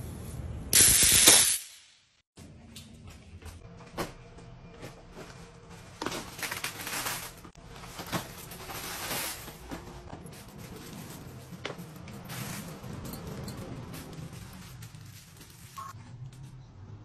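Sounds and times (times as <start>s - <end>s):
wrapped candies pouring: 13.9s - 15.8s.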